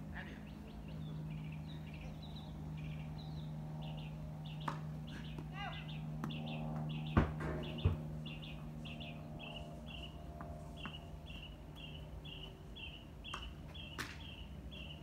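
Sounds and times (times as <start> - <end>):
steady low hum: 0.0 - 15.0
bird chirping: 0.3 - 10.2, 10.8 - 15.0
sharp knocks: 6.2 - 8.1.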